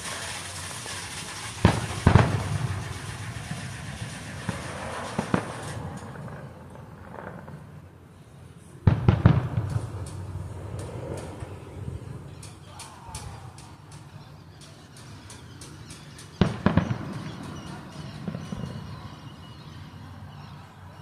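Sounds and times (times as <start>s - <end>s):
fireworks booming: 0.0s - 7.8s, 8.8s - 12.5s, 16.2s - 19.2s.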